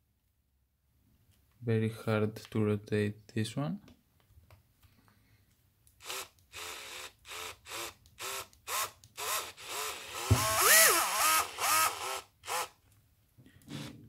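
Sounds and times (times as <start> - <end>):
cordless drill motor whirring: 6.0 - 12.8, 13.6 - 14.0
knock: 10.3 - 10.6.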